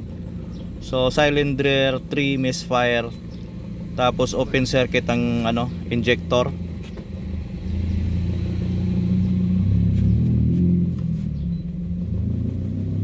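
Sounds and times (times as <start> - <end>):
car engine idling roughly: 0.0 - 8.3.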